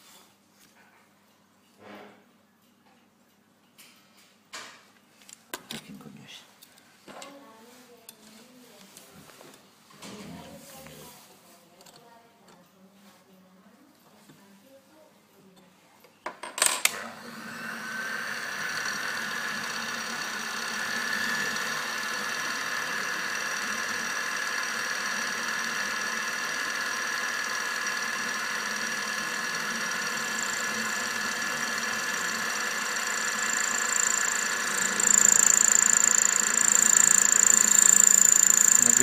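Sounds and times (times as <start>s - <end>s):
lathe motor whining: 16.9s - 39.0s
high whine: 30.0s - 39.0s.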